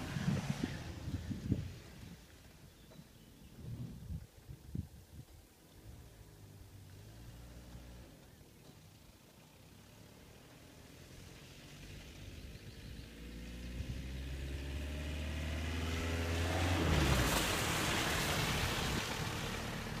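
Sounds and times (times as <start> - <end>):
car passing close by: 0.0 - 2.2, 9.8 - 20.0
diesel car engine accelerating: 0.0 - 2.2, 5.8 - 20.0.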